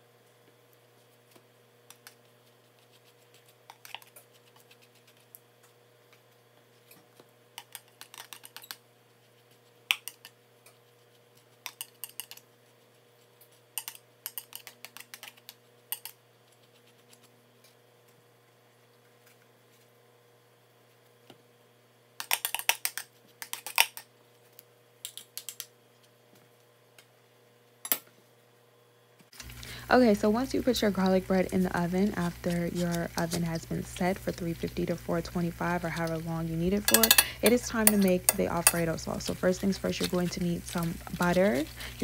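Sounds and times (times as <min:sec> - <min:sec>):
faint steady hum: 0:00.0 - 0:42.0
butter knife scraping bread: 0:31.4 - 0:33.8
knife clinking against cup: 0:36.9 - 0:38.8.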